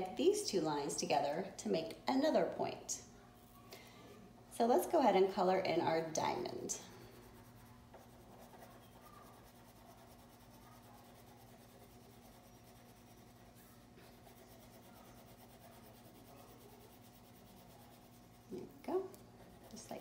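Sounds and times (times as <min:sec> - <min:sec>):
steady low hum: 0:00.0 - 0:20.0
crayon scratching on paper: 0:06.9 - 0:20.0.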